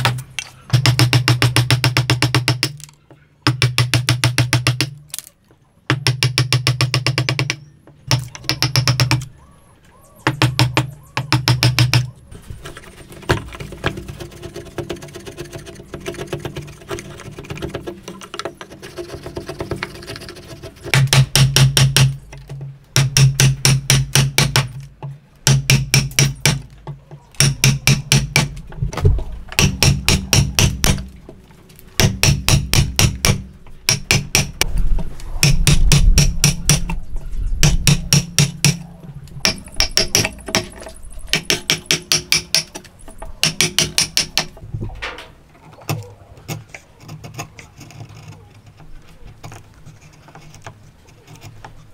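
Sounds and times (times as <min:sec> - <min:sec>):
hammer tapping chisel: 0:25.4 - 0:28.5, 0:32.0 - 0:34.6, 0:39.4 - 0:44.6.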